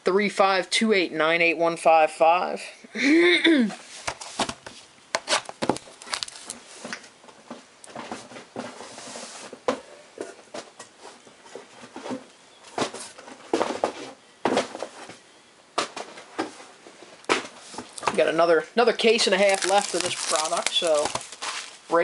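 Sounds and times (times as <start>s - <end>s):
plastic shrink wrap crinkling: 4.2s - 6.8s, 19.0s - 22.0s
hissing rub on plastic: 8.8s - 9.6s.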